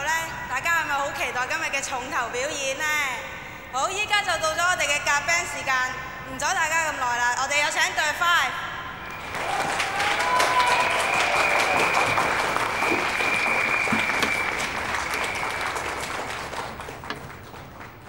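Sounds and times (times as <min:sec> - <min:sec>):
audience applauding and cheering: 0:09.1 - 0:18.0.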